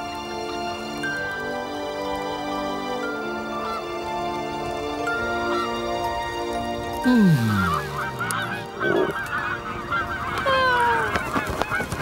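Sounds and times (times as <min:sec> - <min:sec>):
geese honking: 0:07.1 - 0:12.0.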